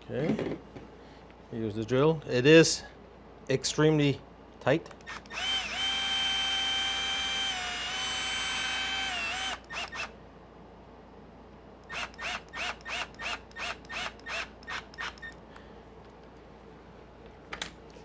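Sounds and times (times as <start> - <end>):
drill motor whine: 5.0 - 10.1, 11.8 - 15.4
short drill trigger bursts: 5.0 - 10.1, 11.8 - 15.4.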